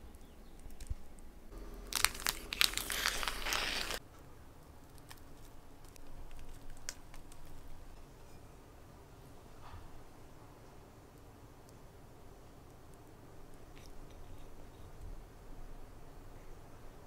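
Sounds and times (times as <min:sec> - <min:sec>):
filling scraped into paper-lined tin: 0:01.9 - 0:04.0.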